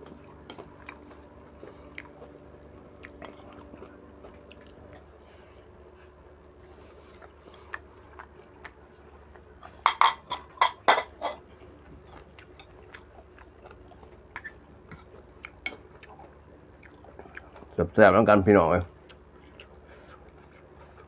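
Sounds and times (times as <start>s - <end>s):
chewing and lip smacks: 0.5s - 5.1s, 7.2s - 9.6s, 15.0s - 17.8s, 18.9s - 21.0s.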